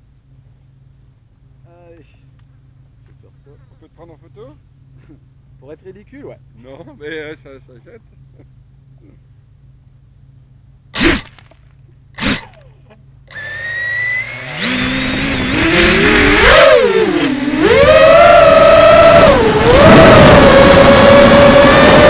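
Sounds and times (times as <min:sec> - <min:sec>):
drone motors and propellers: 0:11.0 - 0:12.7, 0:13.3 - 0:22.0.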